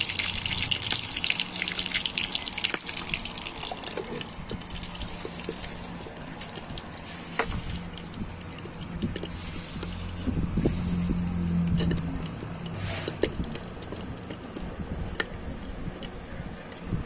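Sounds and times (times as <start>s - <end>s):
fish sizzling in hot oil: 0.0s - 11.2s.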